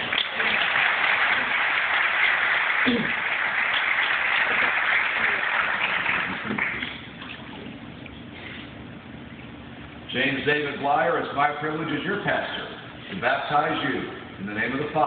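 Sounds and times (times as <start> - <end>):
congregation applauding: 0.0 - 7.1.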